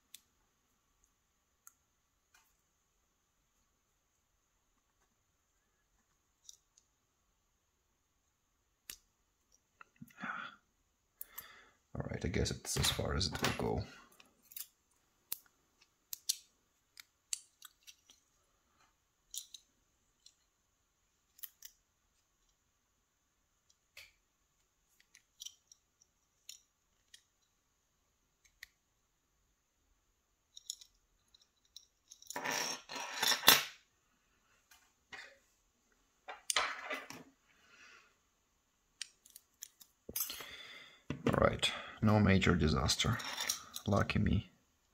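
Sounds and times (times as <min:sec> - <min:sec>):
small metal clicks and taps: 0:19.3 - 0:20.5, 0:25.0 - 0:27.5.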